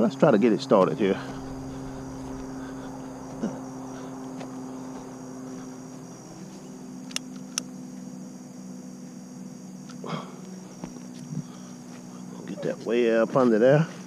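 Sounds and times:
high insect drone: 0.0s - 14.0s
steady low hum: 0.0s - 14.0s
lighter clicks: 7.0s - 7.7s.

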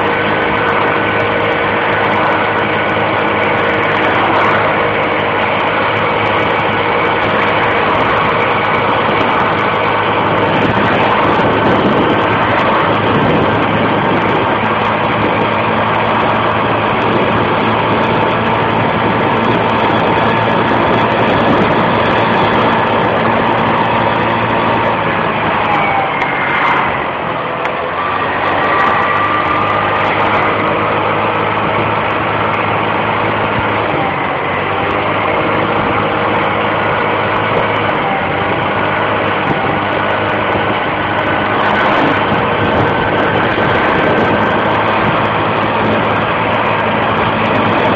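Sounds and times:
scooter engine running: 0.0s - 47.9s.

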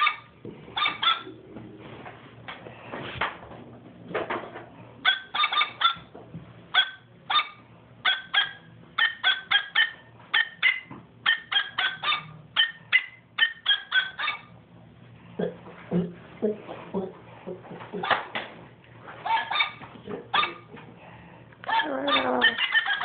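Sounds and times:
high-pitched squeaky toy yaps: 5.1s - 6.0s, 6.8s - 14.5s, 19.3s - 19.8s, 21.7s - 23.0s.

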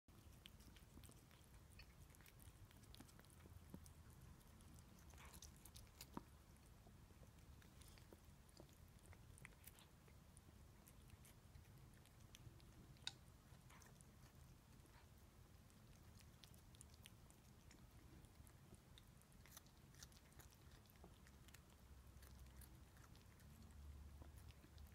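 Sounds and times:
cat chewing food: 0.1s - 24.9s
low room hum: 0.1s - 24.9s.

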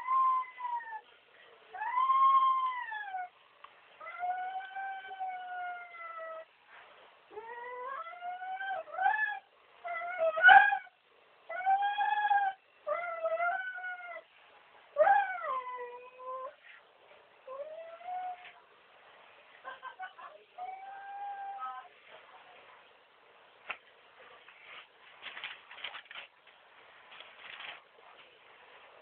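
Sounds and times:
dog whining: 7.3s - 10.9s.

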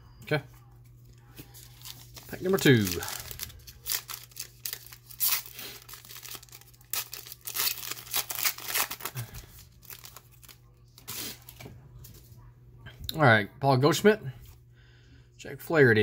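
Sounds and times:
foil wrapper tearing and crinkling: 1.5s - 11.5s.

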